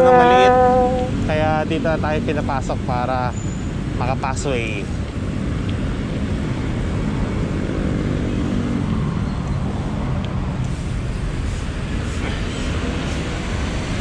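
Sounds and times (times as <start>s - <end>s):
nearby vehicle engine: 0.0s - 3.8s
road traffic rumble: 0.0s - 14.0s.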